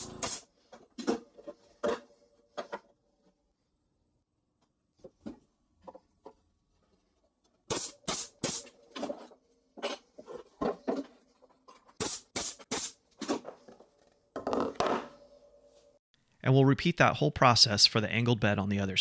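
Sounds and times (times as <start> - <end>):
nail gun shots: 0.0 - 0.5, 7.7 - 8.7.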